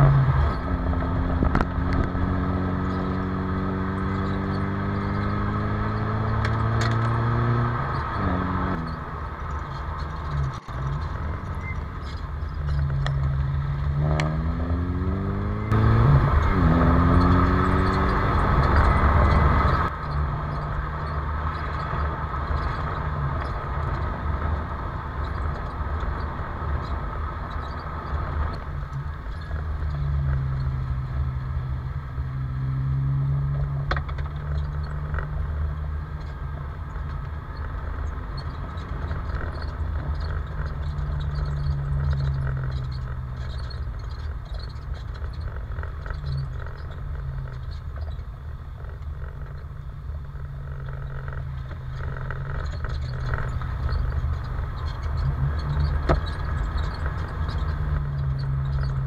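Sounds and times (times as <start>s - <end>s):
car engine revving: 0.0s - 59.0s
road noise: 0.0s - 59.0s.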